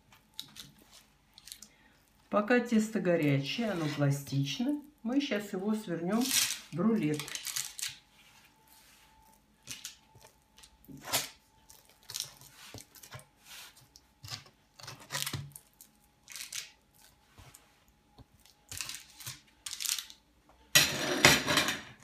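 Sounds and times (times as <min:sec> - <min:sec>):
metal spatula scraping cake: 0:03.4 - 0:04.4.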